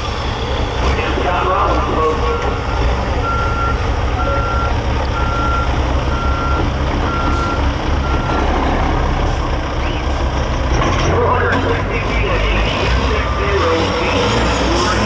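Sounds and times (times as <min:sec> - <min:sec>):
truck diesel engines idling: 0:00.0 - 0:15.0
reversing alarm beeping: 0:02.1 - 0:08.4, 0:12.4 - 0:15.0.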